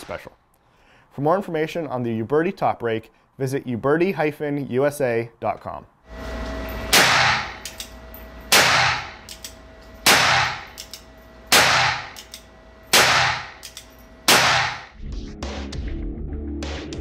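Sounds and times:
revolver shots echoing: 6.9 - 7.6, 8.5 - 9.3, 10.0 - 10.7, 11.5 - 12.2, 12.9 - 13.6, 14.3 - 14.9
revolver hammer cocking clicks: 7.6 - 8.0, 8.6 - 11.1, 12.1 - 14.0.

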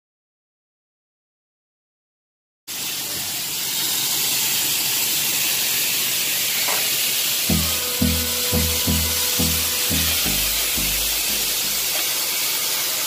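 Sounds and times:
loud steady hiss: 2.7 - 13.0
deep beat over held tone: 7.5 - 12.0.

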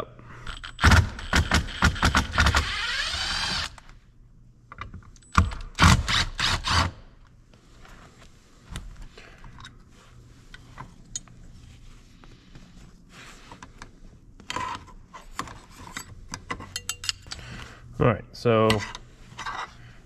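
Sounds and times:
scraping rustles on fabric: 9.9 - 14.4
metal parts clicking and clinking: 15.8 - 17.4.

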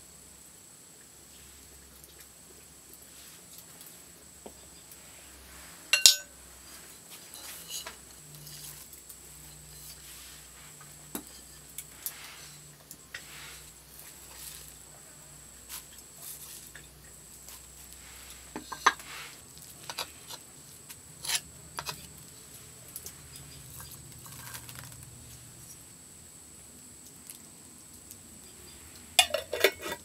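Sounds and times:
spoon tapping glass bowl: 5.9 - 6.3.

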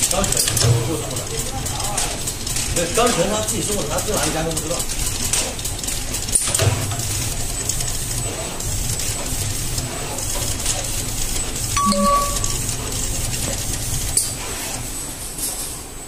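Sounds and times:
short tone: 11.8 - 12.7.

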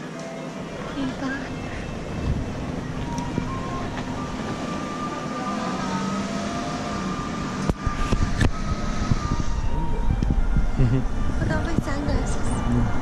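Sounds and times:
street traffic hum: 0.0 - 13.0.

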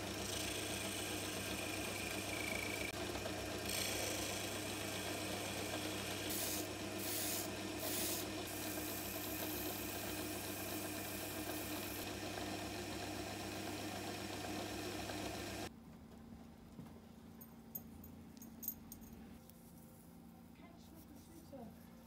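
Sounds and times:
lathe motor humming: 0.0 - 15.7.

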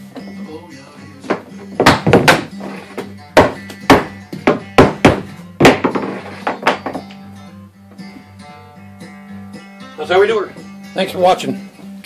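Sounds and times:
mallet knocking on plastic pipe: 1.3 - 2.5, 3.4 - 7.0.

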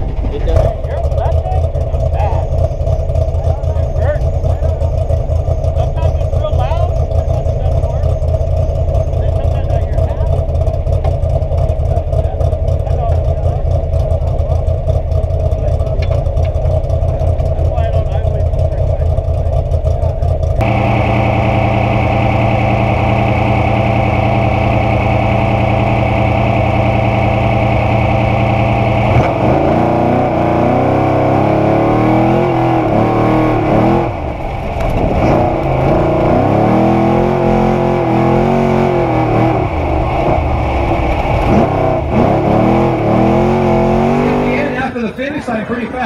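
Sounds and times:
race engine revving: 0.0 - 46.0.

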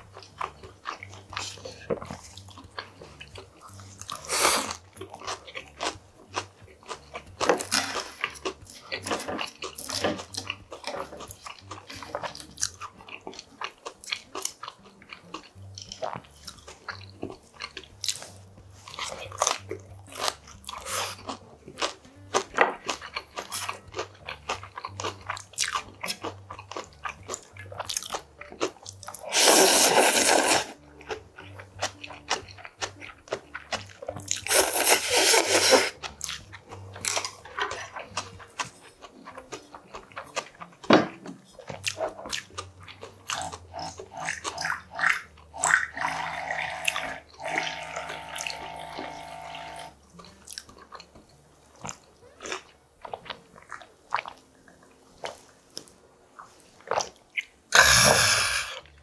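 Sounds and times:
chewing: 0.0 - 59.0
noodle slurps: 29.2 - 30.8, 34.5 - 36.0.

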